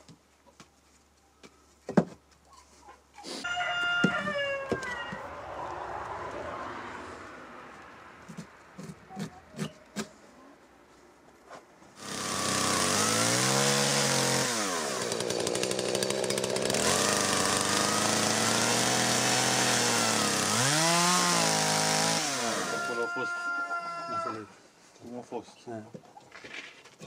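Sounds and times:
chainsaw cutting wood: 12.0 - 23.0.

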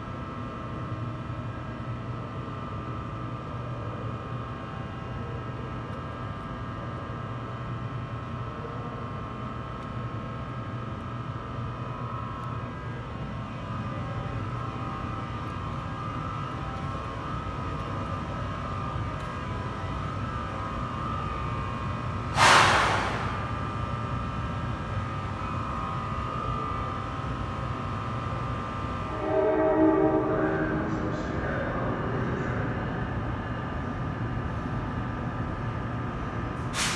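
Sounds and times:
electric locomotive hum and whine: 0.0 - 36.9
air hissing burst: 22.3 - 23.6
train horn: 29.0 - 31.2.

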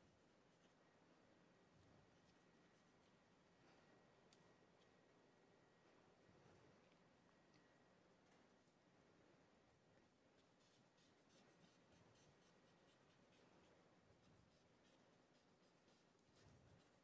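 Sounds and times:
chalk scratching on board: 10.4 - 17.0.

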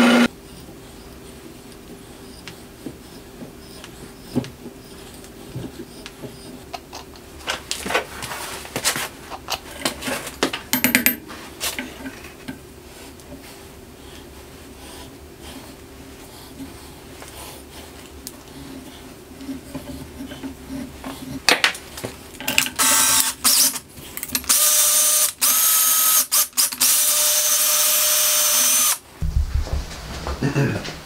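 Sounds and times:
steady low hum: 29.1 - 31.0.

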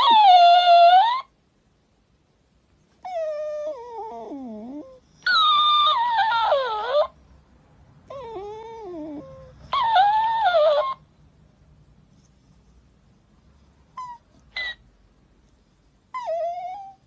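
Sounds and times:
dog whining: 0.0 - 1.4, 3.0 - 7.2, 8.0 - 11.0, 13.9 - 14.9, 16.1 - 17.0.

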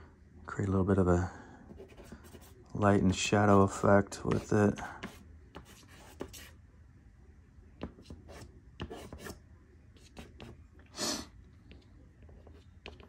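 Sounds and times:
pastel scratching on paper: 1.7 - 6.6, 8.0 - 9.4.

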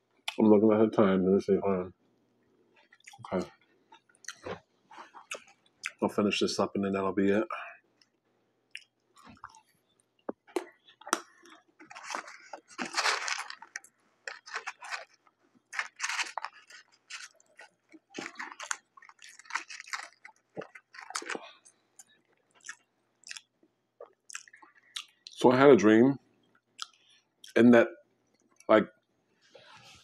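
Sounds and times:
person chewing potato chips: 2.8 - 6.0, 8.7 - 25.2.

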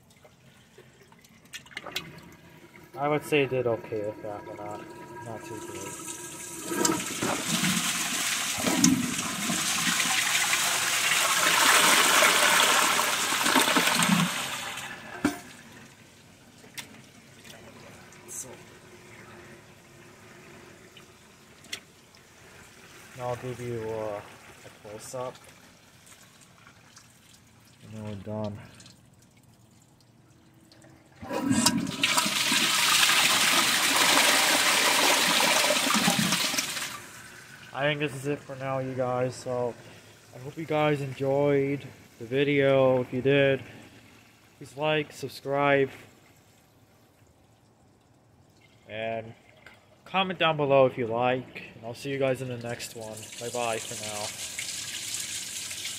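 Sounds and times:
toilet flushing: 0.8 - 16.0, 31.2 - 40.6, 53.0 - 55.9.

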